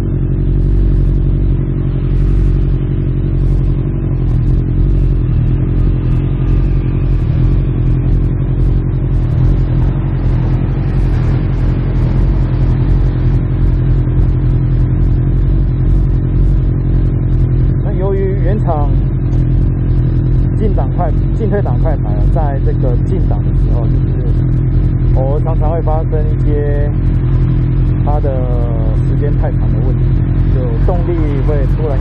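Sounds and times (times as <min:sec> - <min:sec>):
motorcycle engine idling: 0:00.0 - 0:32.0.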